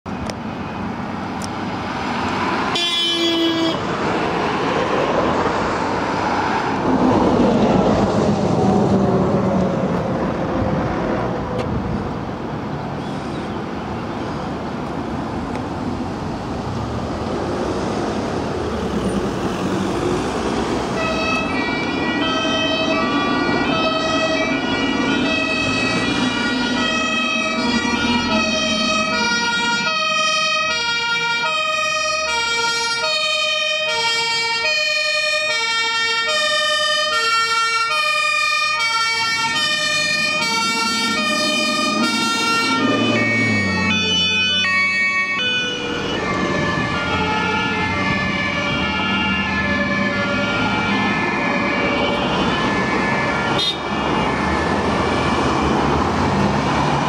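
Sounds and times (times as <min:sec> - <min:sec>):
road traffic passing: 0:00.1 - 0:57.0
fire engine two-tone horn: 0:02.7 - 0:03.9, 0:20.9 - 0:54.4
car horn blast: 0:02.8 - 0:03.8, 0:53.6 - 0:54.0.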